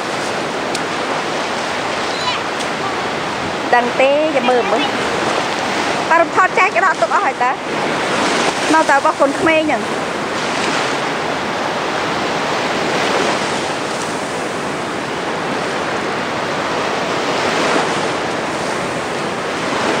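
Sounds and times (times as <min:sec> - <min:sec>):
waves washing on beach: 0:00.0 - 0:20.0.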